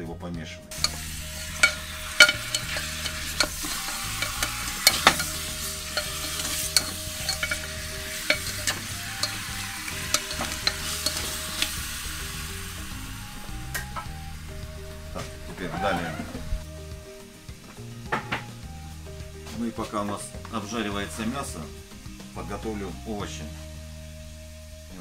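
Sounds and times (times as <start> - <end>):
meat sizzling in hot oil: 0.7 - 25.0
spatula knocking metal pot: 0.8 - 11.8.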